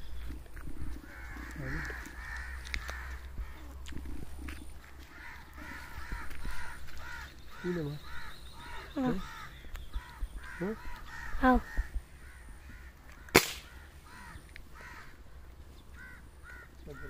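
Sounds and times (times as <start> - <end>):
crow-like caws: 1.0 - 3.8, 4.8 - 15.3, 15.9 - 17.0
air gun shot crack: 13.3 - 13.8.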